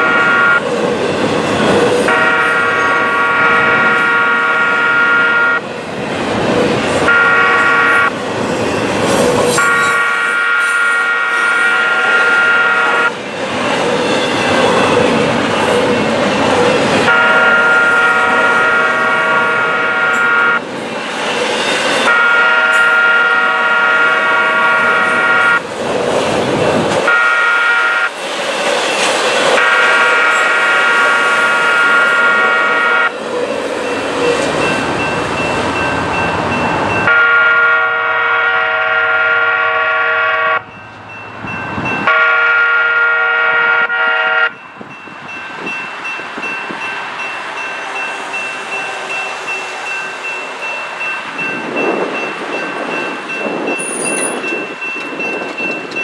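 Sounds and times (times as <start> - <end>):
locomotive horn blasts: 0.0 - 0.6, 2.1 - 5.6, 7.0 - 8.1, 9.6 - 13.1, 17.0 - 20.6, 22.0 - 25.6, 27.0 - 28.1, 29.6 - 33.1, 37.0 - 40.7, 42.0 - 44.6
train wheels clattering on rails: 12.8 - 23.0, 28.0 - 32.4, 33.0 - 37.2, 44.7 - 56.0.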